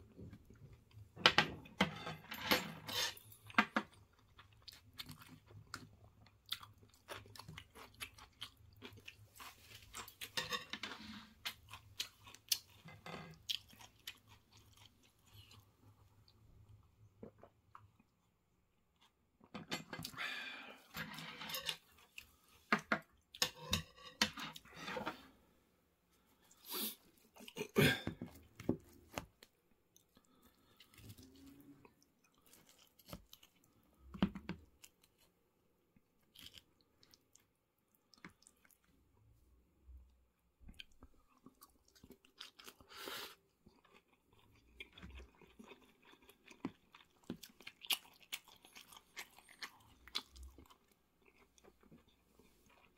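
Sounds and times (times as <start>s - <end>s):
close chewing and crunching: 3.2s - 18.3s, 26.4s - 35.4s, 36.0s - 39.2s, 40.6s - 52.9s
crunching fried cutlet: 43.6s - 52.1s.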